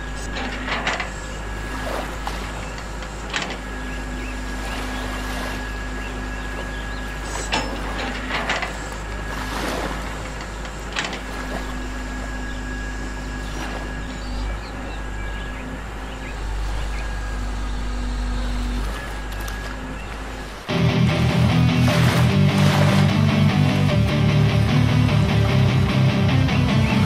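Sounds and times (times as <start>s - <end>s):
electric motors whirring: 0.0s - 27.0s.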